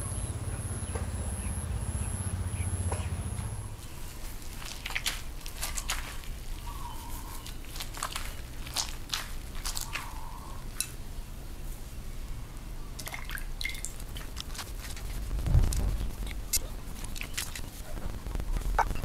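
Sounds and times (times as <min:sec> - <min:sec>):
wet squishing of hair mask: 0:04.0 - 0:10.4
low bump: 0:15.2 - 0:16.6.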